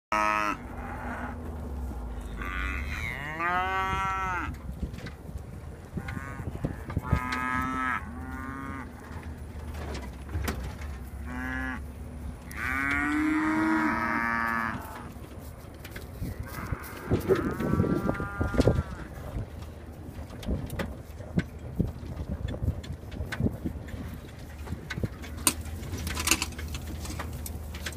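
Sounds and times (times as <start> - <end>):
cattle mooing: 0.1 - 4.6, 5.8 - 9.9, 11.0 - 15.2, 16.2 - 19.4.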